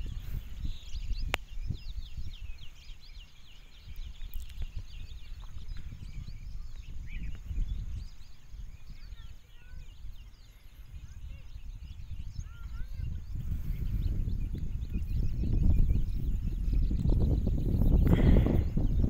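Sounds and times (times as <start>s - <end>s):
small birds chirping: 0.0s - 19.0s
wind buffeting microphone: 0.0s - 19.0s.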